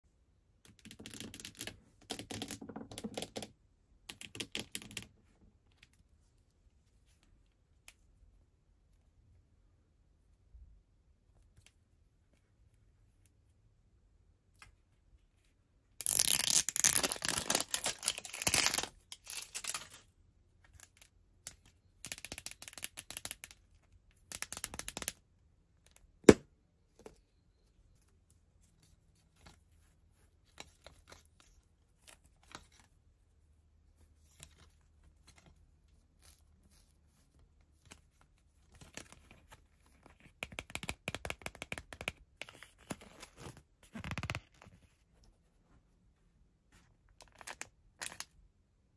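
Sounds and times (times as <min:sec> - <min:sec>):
plastic packaging crinkling and tearing: 0:16.0 - 0:20.0.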